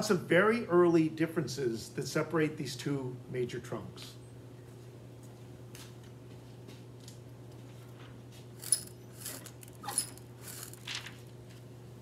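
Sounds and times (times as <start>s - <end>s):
steady low hum: 0.0s - 12.0s
plastic sheets clicking and rustling: 10.5s - 11.4s.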